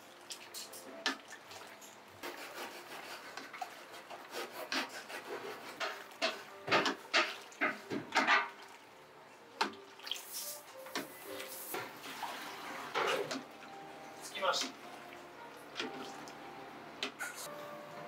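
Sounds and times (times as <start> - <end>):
wooden paddle scraping metal bowl: 2.2 - 6.5.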